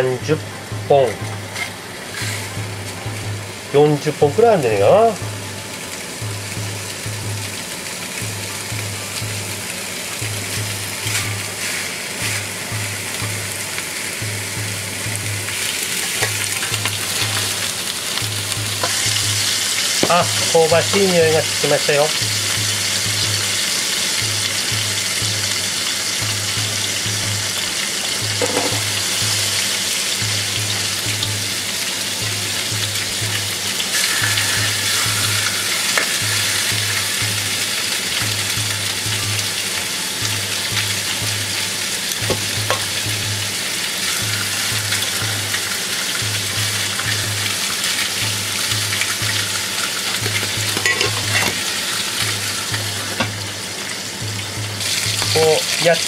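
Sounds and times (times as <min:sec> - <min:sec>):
meat sizzling in a frying pan: 0:00.0 - 0:56.0
pulsing low hum: 0:05.2 - 0:07.6.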